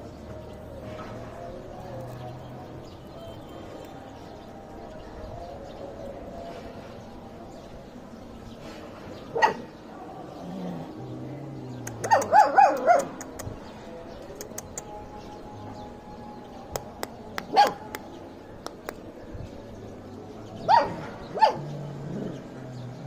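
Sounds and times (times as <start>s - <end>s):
dogs barking: 9.2s - 10.5s, 11.9s - 13.4s, 17.4s - 18.0s, 20.6s - 22.4s.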